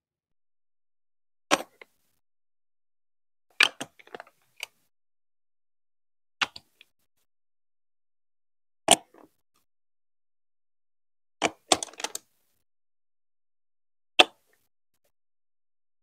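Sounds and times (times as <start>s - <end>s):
plastic building bricks clicking: 11.4s - 12.3s.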